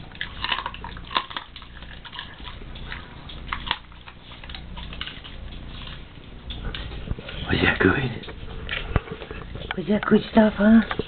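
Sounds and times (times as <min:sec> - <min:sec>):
dog chewing with crunches: 0:00.0 - 0:11.0.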